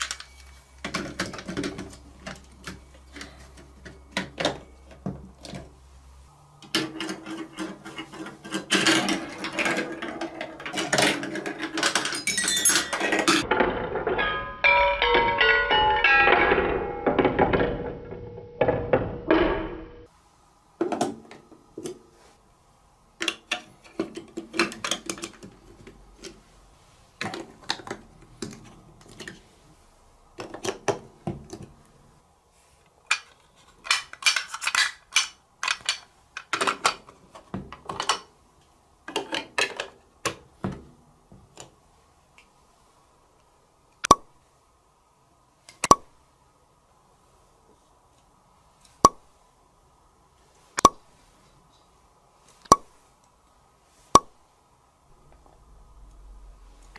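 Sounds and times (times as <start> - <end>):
ball rolling down xylophone chute: 12.1 - 17.3.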